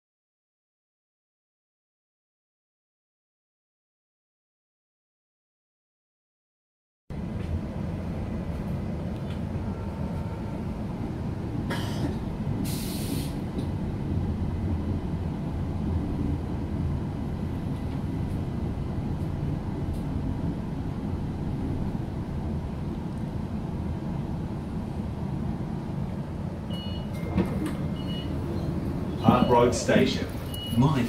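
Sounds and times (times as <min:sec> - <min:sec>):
train carriage rumble: 0:07.1 - 0:31.0
short sharp hiss: 0:12.7 - 0:13.4.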